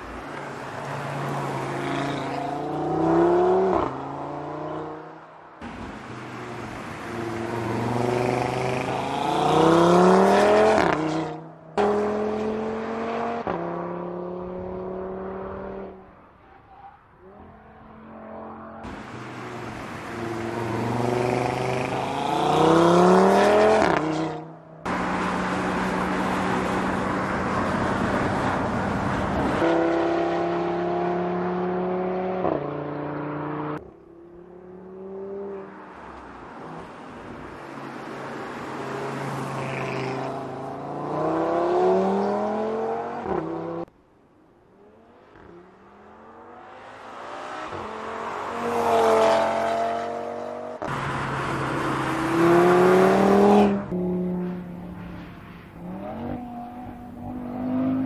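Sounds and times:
car engine accelerating hard: 0:46.2 - 0:54.5.

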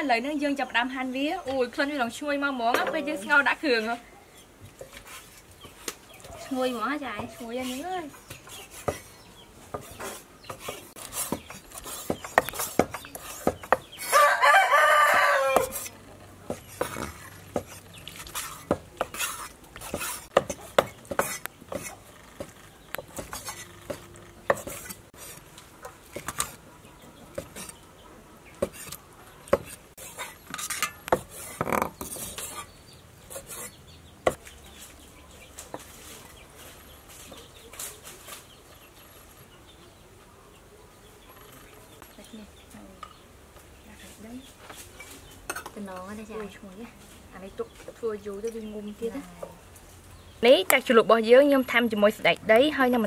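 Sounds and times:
cleavers chopping on wooden blocks: 0:09.7 - 0:14.2, 0:16.5 - 0:17.8, 0:18.4 - 0:25.0
rooster crowing: 0:14.0 - 0:15.9.

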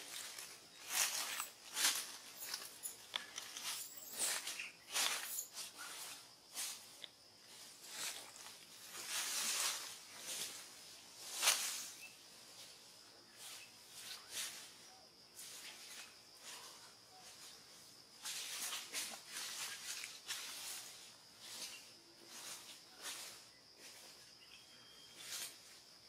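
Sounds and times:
rustling in tree: 0:00.0 - 0:26.0
faint steady high tone: 0:24.4 - 0:25.4.

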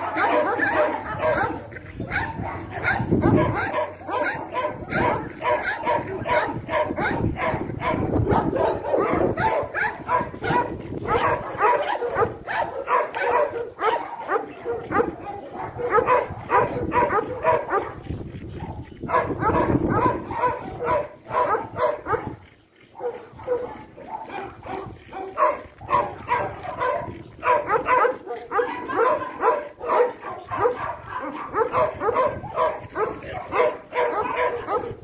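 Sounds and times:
dogs whining and yipping: 0:00.0 - 0:35.0.

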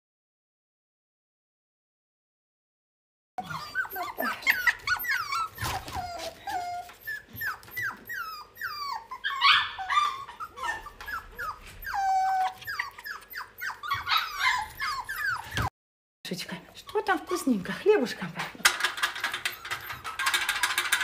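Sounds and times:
puppies whining and yelping: 0:03.4 - 0:15.7, 0:18.3 - 0:21.0.

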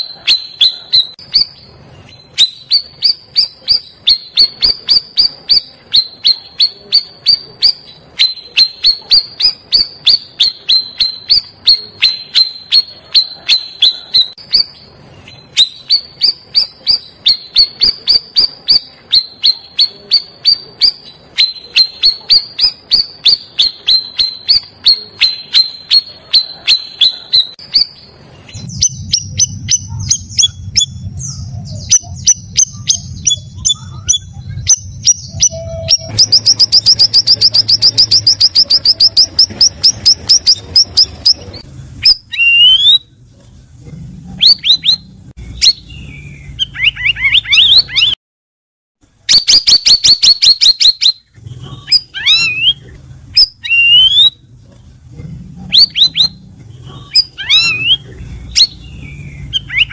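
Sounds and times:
bulbul singing: 0:00.0 - 0:43.2, 0:44.4 - 0:48.2, 0:49.2 - 0:54.6, 0:55.6 - 0:59.9
low steady hum: 0:27.5 - 0:42.4.

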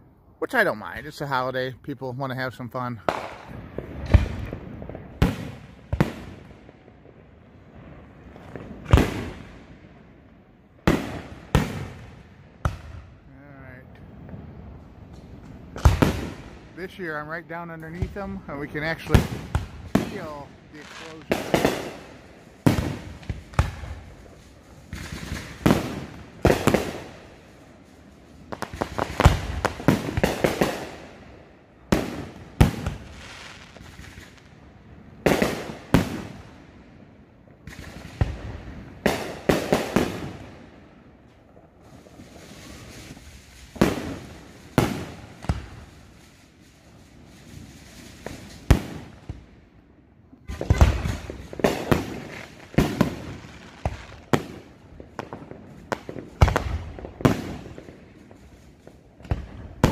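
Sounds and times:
firework shells bursting: 0:10.8 - 0:27.8.

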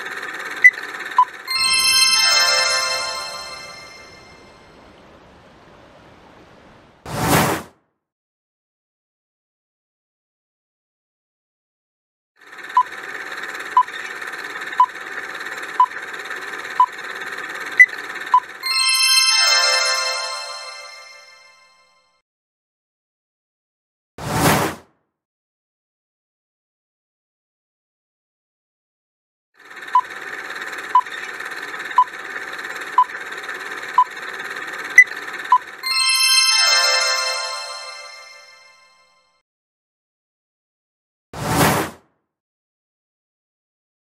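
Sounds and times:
bright chime with falling sweep: 0:01.5 - 0:04.7, 0:18.6 - 0:21.9, 0:35.8 - 0:39.1
countdown timer beeps: 0:30.9 - 0:31.1, 0:35.0 - 0:36.5.

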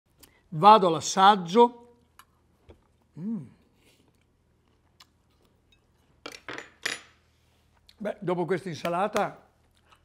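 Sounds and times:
quiet mouth sounds: 0:02.7 - 0:04.3.

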